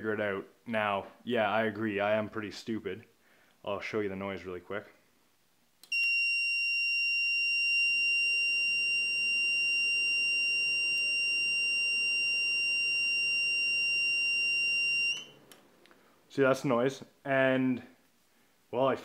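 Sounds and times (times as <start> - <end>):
continuous high-pitched beep: 5.9 - 15.3.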